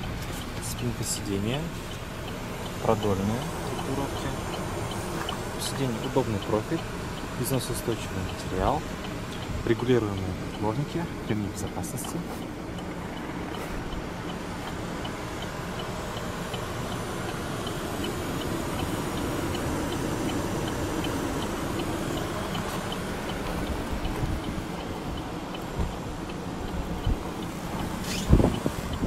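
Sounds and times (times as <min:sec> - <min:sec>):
light even ticking: 0:00.0 - 0:29.0
handling and wind rumble: 0:17.9 - 0:29.0.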